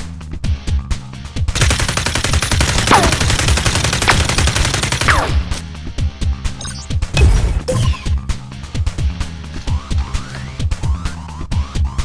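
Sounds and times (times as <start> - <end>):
rapid automatic gunfire: 1.5 - 5.6.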